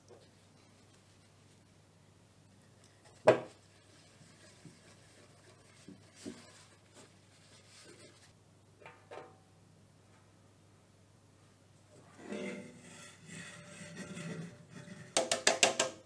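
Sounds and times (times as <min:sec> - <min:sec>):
paper rubbing inside metal tin: 0:03.5 - 0:08.3
knocks against metal tin: 0:15.2 - 0:16.0.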